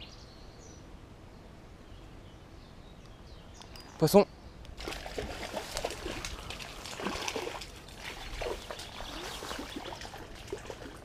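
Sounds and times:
fish splashing in water: 0:04.8 - 0:11.0.

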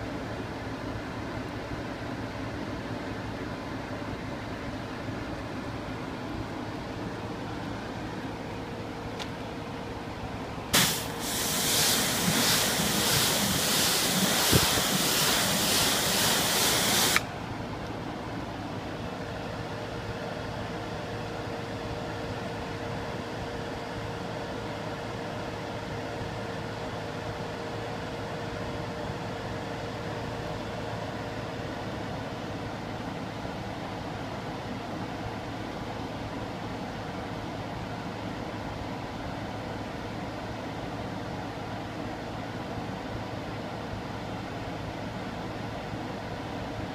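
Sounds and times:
hose spraying water: 0:10.8 - 0:17.2.

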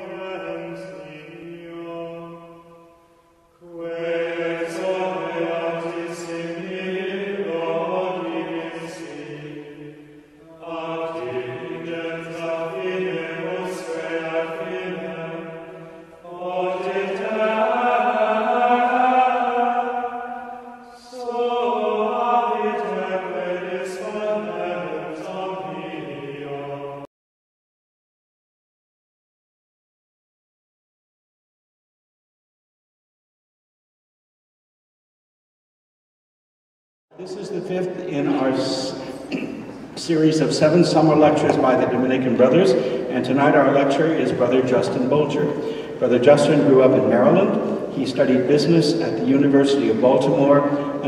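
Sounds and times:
person chanting: 0:00.0 - 0:02.8, 0:03.6 - 0:27.1, 0:37.1 - 0:51.0.

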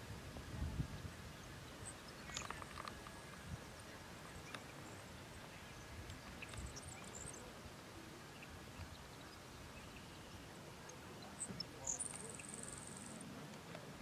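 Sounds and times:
faint high chirps: 0:01.8 - 0:14.0
small clicks: 0:02.3 - 0:03.2.

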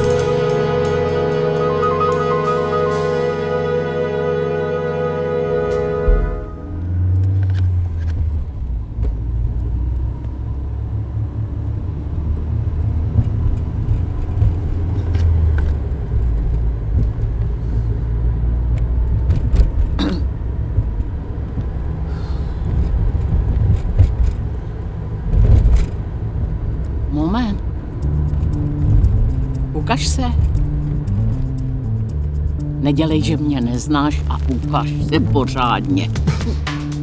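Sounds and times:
car engine and road rumble: 0:00.0 - 0:37.0.

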